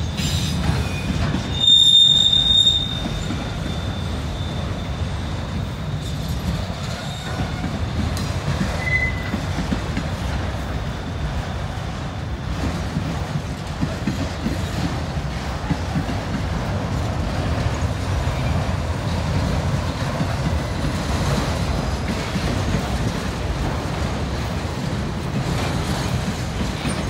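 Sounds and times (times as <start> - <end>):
wheel flanges squealing: 0.0 - 7.7
train wheels rumbling on rails: 0.0 - 27.0.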